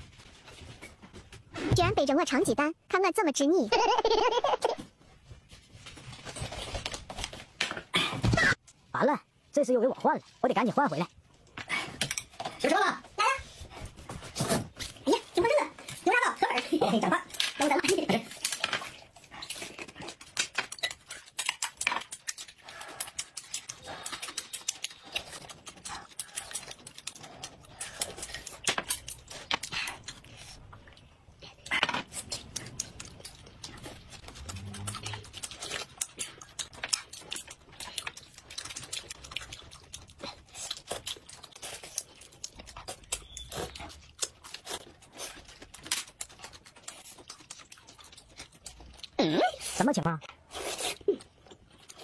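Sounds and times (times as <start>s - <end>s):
wet chewing and lip-smacking: 17.2s - 52.0s.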